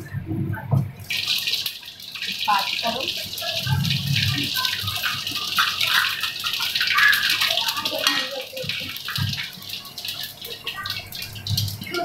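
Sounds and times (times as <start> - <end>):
oil sizzling with crackles: 0.9 - 12.0.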